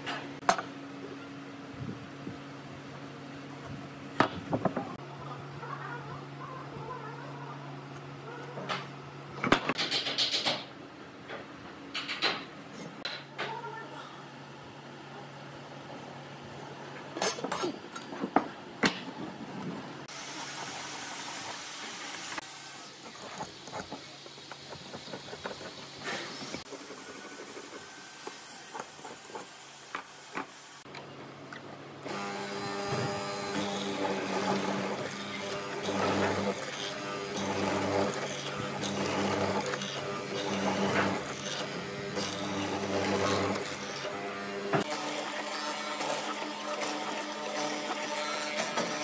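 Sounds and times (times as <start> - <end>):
mortiser motor hum: 32.0 - 49.0.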